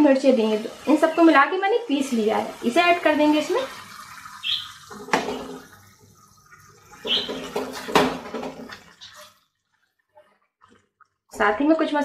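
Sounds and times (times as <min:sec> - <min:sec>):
wet squelching and sloshing: 0:03.7 - 0:11.5.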